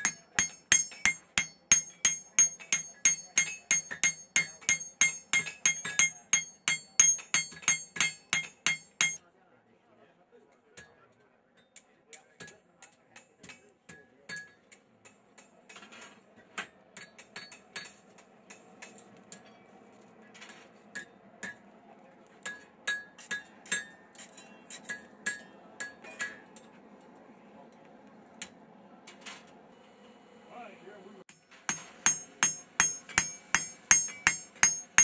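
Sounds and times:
hammer striking steel anvil: 0:00.0 - 0:09.2, 0:22.4 - 0:26.5, 0:31.3 - 0:35.0.

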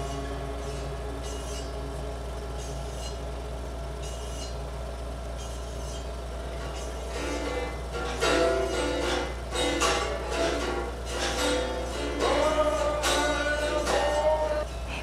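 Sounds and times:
steady low hum: 0:00.0 - 0:15.0
plucked-string music: 0:06.4 - 0:15.0.

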